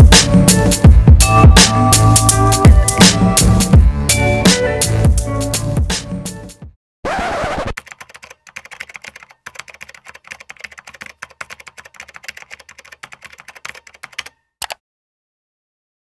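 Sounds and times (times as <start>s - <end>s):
quick irregular clicks: 7.8s - 14.8s.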